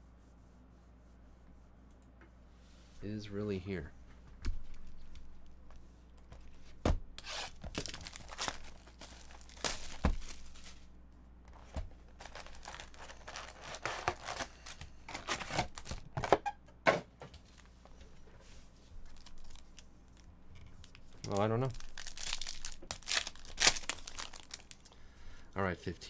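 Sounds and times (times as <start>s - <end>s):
plastic wrap crinkling: 7.2s - 10.9s, 11.5s - 16.2s, 19.0s - 24.9s
card packs crinkling and tapping: 7.5s - 10.8s, 11.5s - 16.4s, 20.8s - 24.9s.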